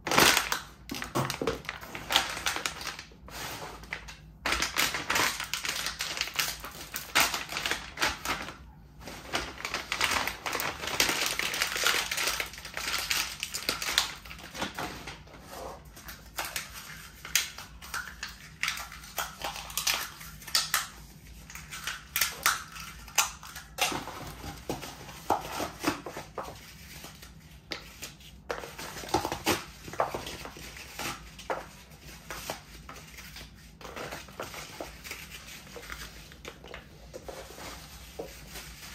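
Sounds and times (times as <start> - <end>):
foil packet crinkling underfoot: 0.1 - 14.8.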